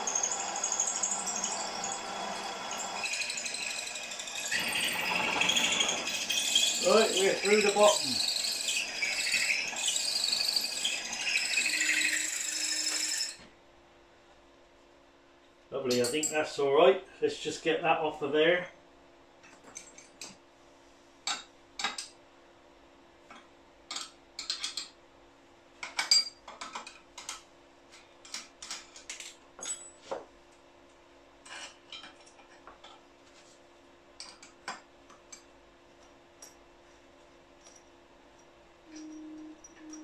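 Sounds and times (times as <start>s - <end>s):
metal clinking on metal: 15.9s - 16.5s, 25.8s - 26.6s, 28.7s - 30.1s.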